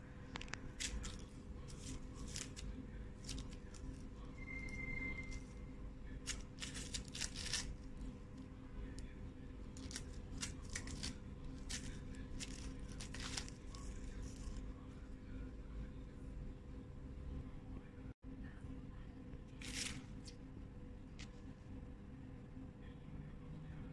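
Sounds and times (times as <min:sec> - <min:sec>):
steady low hum: 0:00.0 - 0:23.9
kitten tearing plant leaves: 0:00.4 - 0:04.2, 0:06.2 - 0:08.1, 0:09.7 - 0:14.6, 0:19.6 - 0:20.4.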